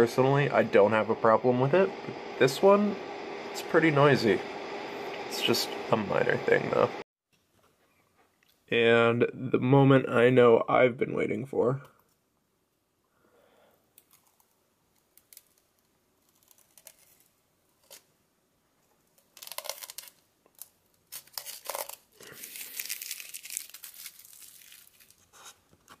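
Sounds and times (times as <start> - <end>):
plastic film peeling crackling: 15.1 - 18.0, 19.2 - 26.0.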